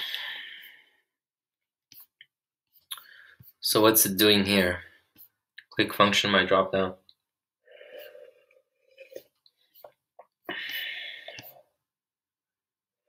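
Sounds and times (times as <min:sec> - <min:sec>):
person breathing softly: 0:00.0 - 0:01.1, 0:07.6 - 0:11.8.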